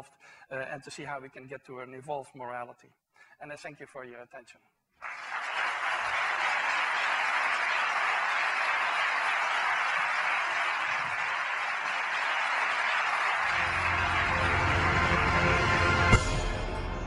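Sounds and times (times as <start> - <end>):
audience applauding: 5.0 - 16.4
low music notes: 13.5 - 17.0.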